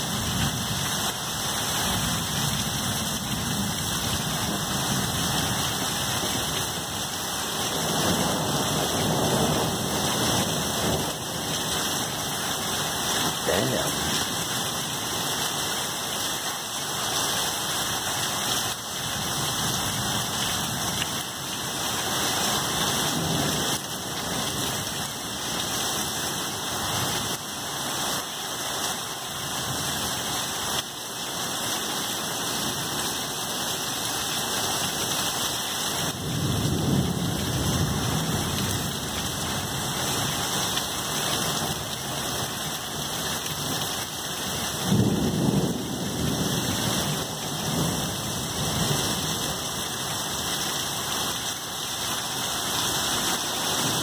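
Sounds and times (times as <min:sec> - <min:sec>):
heavy rain pouring: 0:00.0 - 0:54.0.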